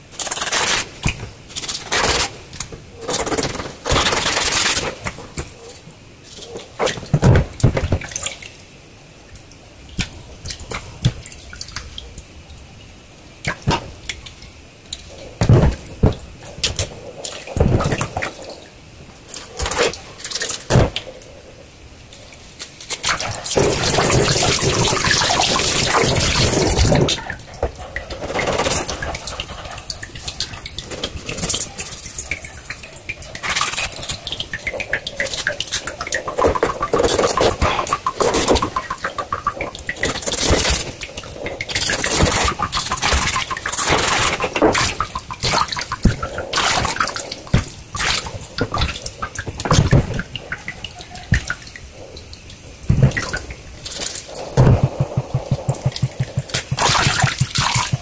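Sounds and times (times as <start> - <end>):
water splashing and dripping: 0.0 - 58.0
tap running: 54.6 - 58.0.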